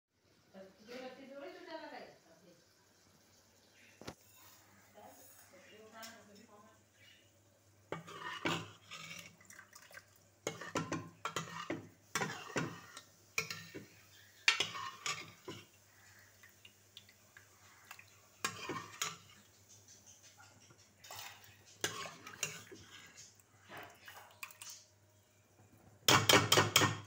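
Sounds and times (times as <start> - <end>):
metal ladle scraping a pot: 7.9 - 9.4, 10.4 - 16.2, 17.7 - 24.7.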